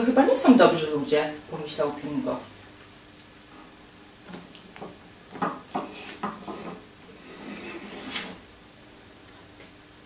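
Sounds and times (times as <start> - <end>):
card scraping against wood: 5.8 - 8.4.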